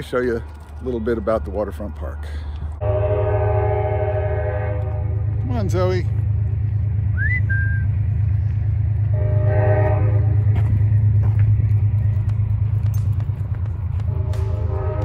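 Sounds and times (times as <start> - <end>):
train rumbling: 0.0 - 15.0
train horn blast: 2.8 - 5.4, 9.0 - 10.9, 14.0 - 15.0
short whistle: 7.1 - 7.9.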